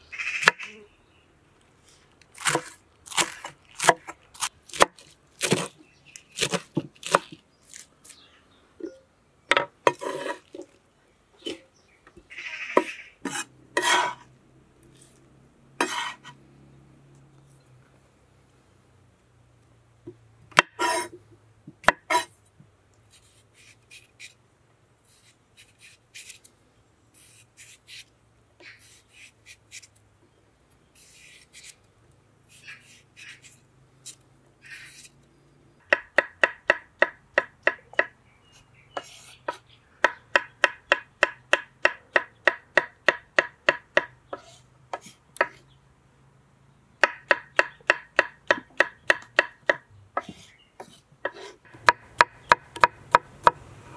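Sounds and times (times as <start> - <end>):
knife peeling cucumber: 2.3 - 7.9, 23.1 - 24.4, 25.0 - 26.5, 27.1 - 30.0, 31.0 - 31.8.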